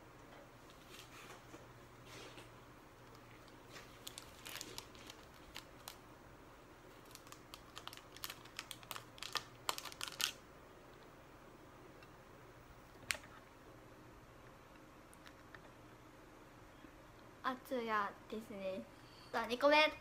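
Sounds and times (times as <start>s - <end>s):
foil wrapper crinkling: 3.4s - 6.0s, 6.9s - 10.4s.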